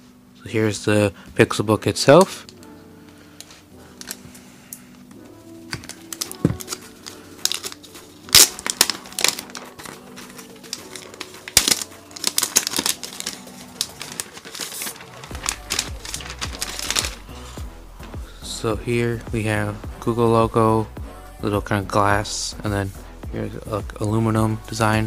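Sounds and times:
soft background music: 0.0s - 25.0s
plastic film crinkling: 3.4s - 17.5s.

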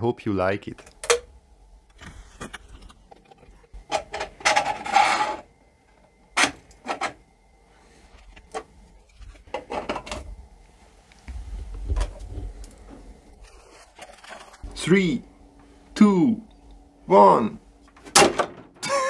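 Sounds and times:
plastic parts scraping: 2.0s - 5.5s, 13.4s - 14.6s.

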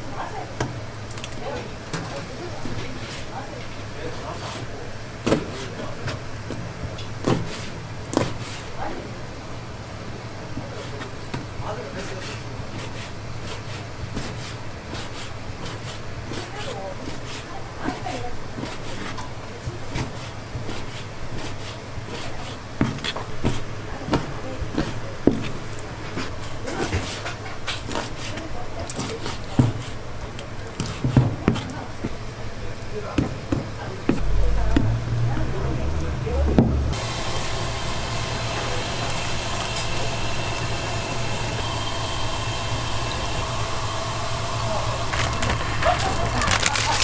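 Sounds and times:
broth boiling hard: 0.0s - 47.0s
steady low hum: 33.8s - 38.8s.

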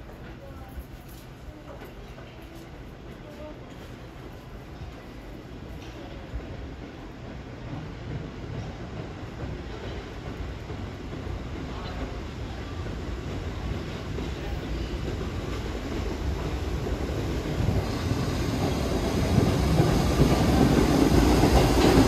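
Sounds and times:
subway train rumbling on tracks: 0.0s - 22.0s.

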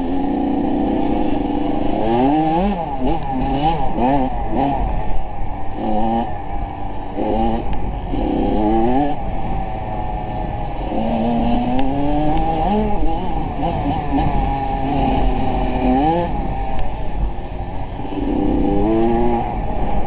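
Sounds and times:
vehicle engine revving: 0.0s - 20.0s.

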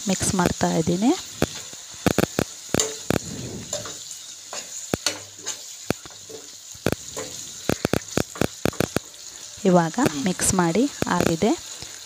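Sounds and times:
masala sizzling in frying pan: 0.0s - 12.0s
spatula scraping pan: 2.3s - 9.4s.

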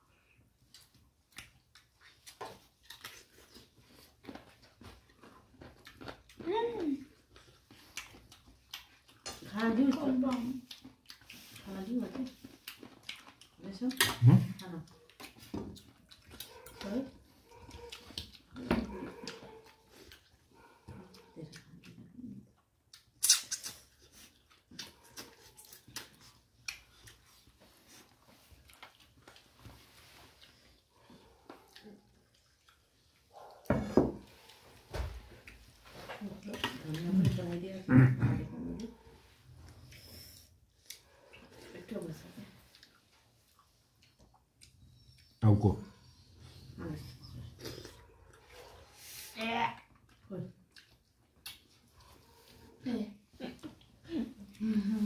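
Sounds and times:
quiet chewing: 0.0s - 55.0s
lip smacks: 22.8s - 27.5s.

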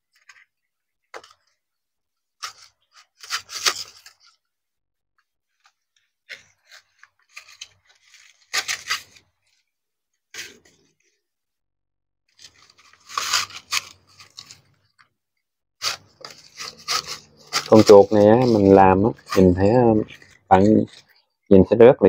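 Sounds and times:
leaf strips rubbing and crackling: 15.8s - 21.4s.

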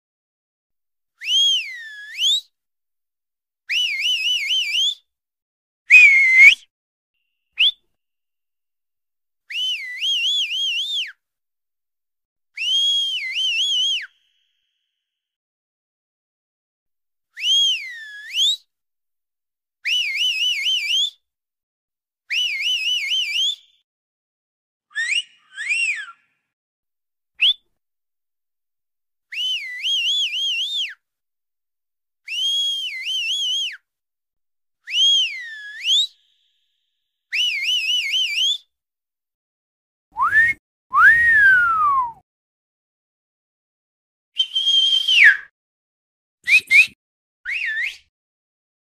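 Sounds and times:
man whistling with fingers: 1.2s - 2.6s, 3.7s - 5.1s, 5.9s - 6.7s, 7.5s - 8.0s, 9.5s - 11.2s, 12.6s - 14.8s, 17.4s - 18.7s, 19.8s - 21.2s, 22.3s - 23.8s, 24.9s - 26.3s, 27.4s - 27.7s, 29.3s - 31.0s, 32.3s - 33.9s, 34.9s - 36.6s, 37.3s - 38.7s, 40.2s - 42.2s, 44.4s - 45.5s, 46.4s - 48.1s.

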